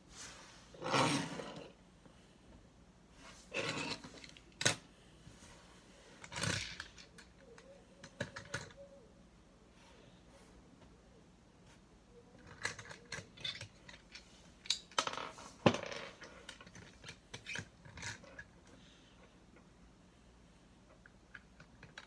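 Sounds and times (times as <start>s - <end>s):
plastic toy parts clicking: 6.2s - 8.8s, 12.4s - 15.0s.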